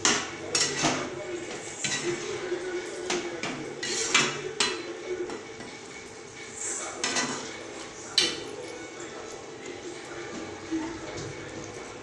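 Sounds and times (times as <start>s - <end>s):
ladle scraping metal pan: 3.7s - 4.9s.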